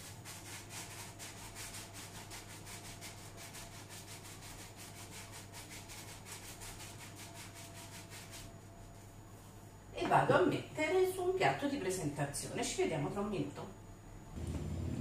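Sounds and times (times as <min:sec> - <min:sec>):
sugar sifting rubbing hiss: 0:00.0 - 0:09.7.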